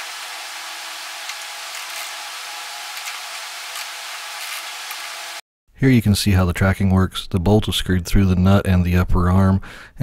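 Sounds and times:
workshop background hiss: 0:00.0 - 0:05.4.

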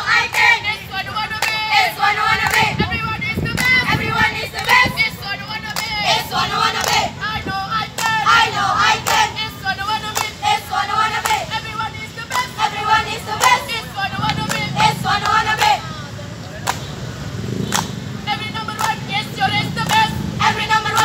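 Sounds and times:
girls singing a chant: 0:00.0 - 0:16.1, 0:18.3 - 0:21.0
hand claps: 0:01.3 - 0:01.6, 0:02.4 - 0:02.7, 0:03.5 - 0:03.8, 0:05.7 - 0:06.0, 0:06.8 - 0:07.1, 0:07.9 - 0:08.2, 0:10.1 - 0:10.4, 0:11.2 - 0:11.4, 0:16.6 - 0:16.9, 0:17.7 - 0:17.9, 0:18.8 - 0:19.0, 0:19.8 - 0:20.1.

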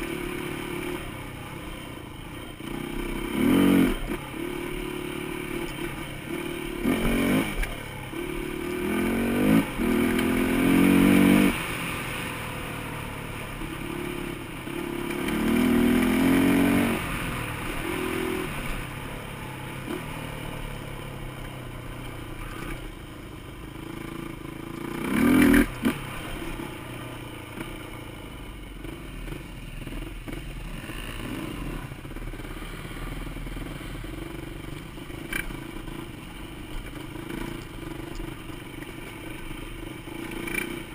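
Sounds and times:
dirt bike engine revving: 0:02.4 - 0:19.0, 0:23.9 - 0:27.8, 0:28.8 - 0:34.4, 0:37.0 - 0:40.9.

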